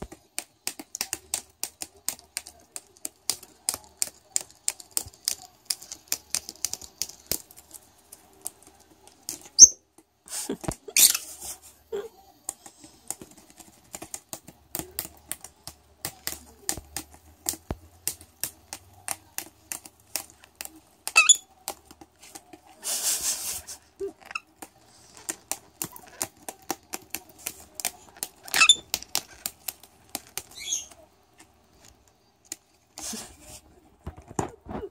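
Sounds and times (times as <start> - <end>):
bird beak snipping paper: 0.1 - 9.8, 12.5 - 33.5.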